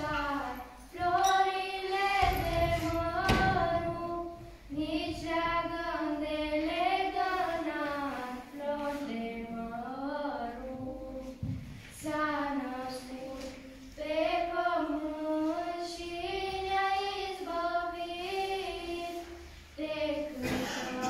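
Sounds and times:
children singing carol unaccompanied: 0.0 - 21.0.

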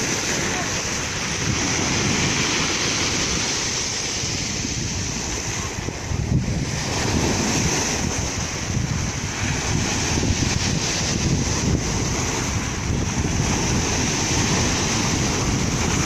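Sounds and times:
surf breaking over rocks: 0.0 - 16.0
waves washing up pebble beach: 0.0 - 16.0.

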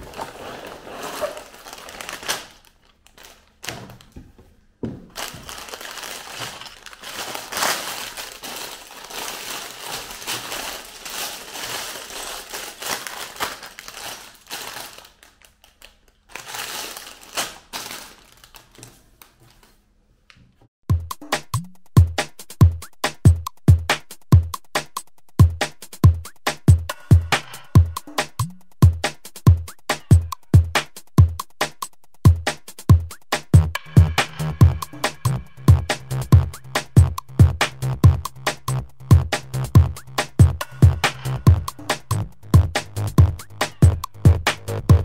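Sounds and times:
plastic bags crinkling: 0.0 - 4.2, 5.1 - 19.8.

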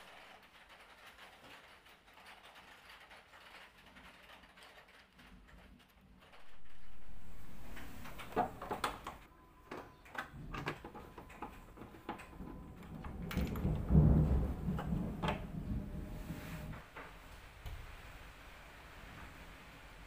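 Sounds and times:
low rumble and knocking: 10.4 - 18.0.

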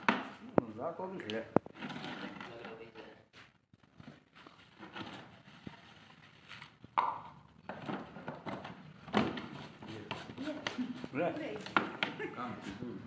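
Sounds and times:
plastic jug knocking and crinkling: 6.8 - 12.3.

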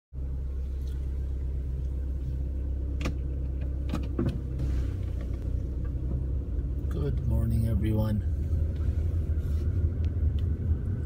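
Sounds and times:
car engine humming: 0.1 - 11.0
sharp clicks and knocks: 3.0 - 4.4.

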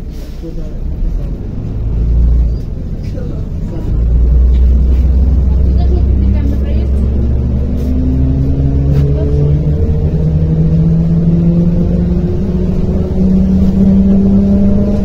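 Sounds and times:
bus engine rumble and whine: 0.0 - 15.0.

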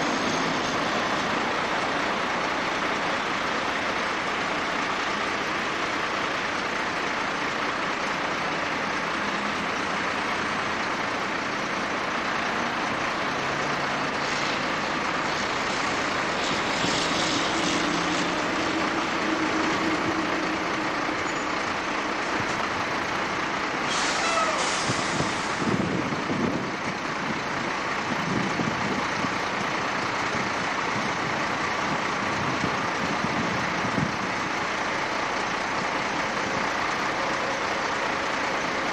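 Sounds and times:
distant truck diesel engine: 0.0 - 38.9
air brake hiss: 15.6 - 19.6, 23.8 - 25.8.

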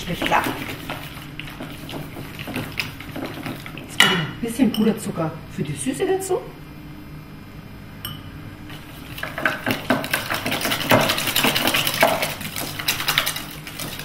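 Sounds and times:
whisk rattling in metal bowl: 0.0 - 4.1, 8.7 - 14.0.

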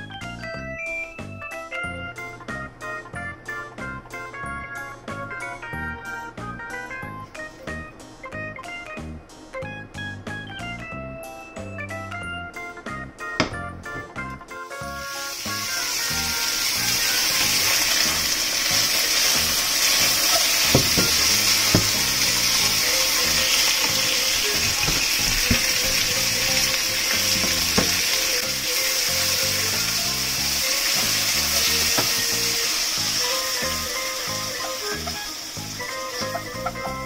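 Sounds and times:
pork sizzling in a frying pan: 14.7 - 37.0.

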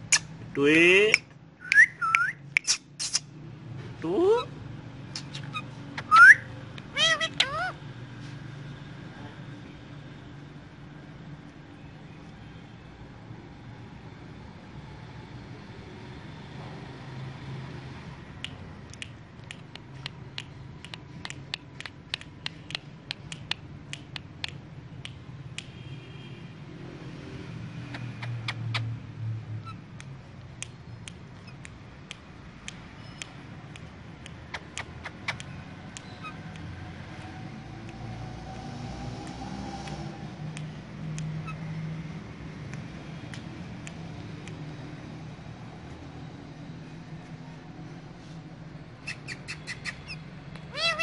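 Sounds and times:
parakeet clicking: 18.4 - 25.7, 27.8 - 29.0, 29.6 - 38.1, 42.6 - 45.0.

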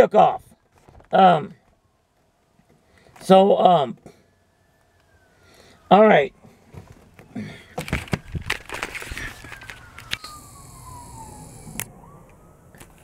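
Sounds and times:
faint police siren: 1.2 - 13.0
phone handling knocks and rustles: 6.7 - 9.9.

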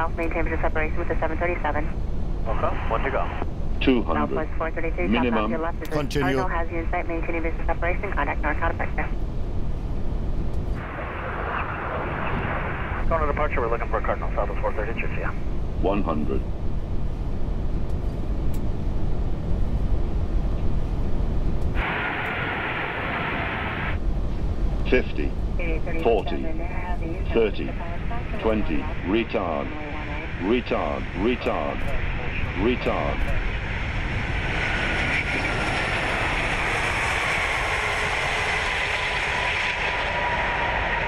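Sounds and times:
cockpit rumble of engines: 0.0 - 11.0, 24.0 - 41.0
faint high whine: 0.0 - 41.0
jet noise hiss: 21.4 - 41.0.

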